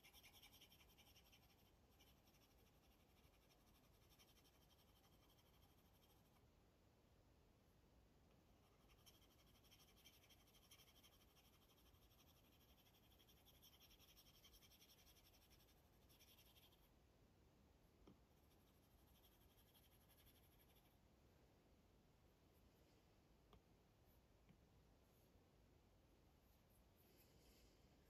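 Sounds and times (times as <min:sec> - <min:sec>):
stylus scratching on screen: 0:00.0 - 0:06.4, 0:08.6 - 0:16.9, 0:18.3 - 0:21.0.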